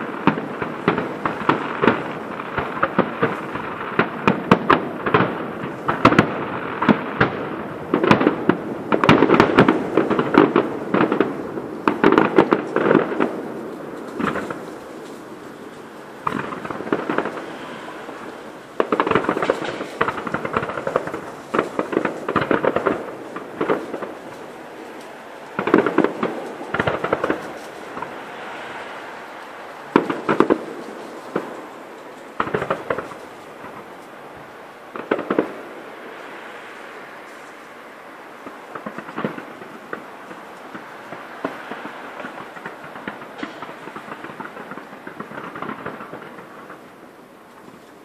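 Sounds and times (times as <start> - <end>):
fireworks bursting: 0.0 - 48.0.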